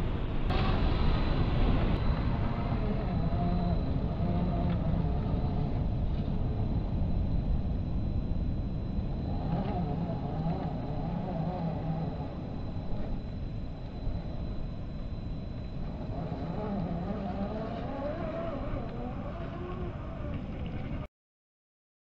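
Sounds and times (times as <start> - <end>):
wind buffeting microphone: 0.0 - 21.1
toy car electric motor whining: 9.3 - 13.2, 15.9 - 20.9.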